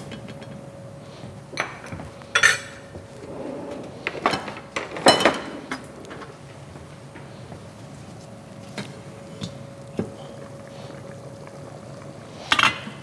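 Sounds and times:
pan and utensils clattering: 3.7 - 6.4.

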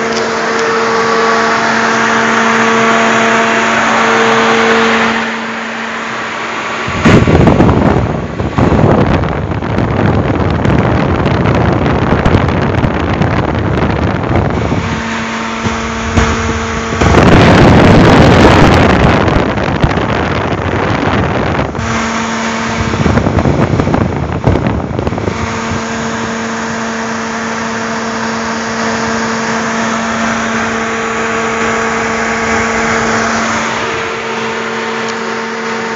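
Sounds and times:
low hum: 0.0 - 35.9
radiator fan air rush: 0.0 - 35.9.

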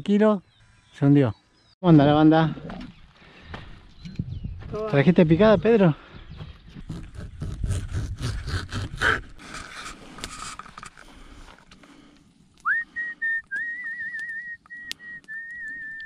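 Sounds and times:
person whistling: 12.6 - 16.0.

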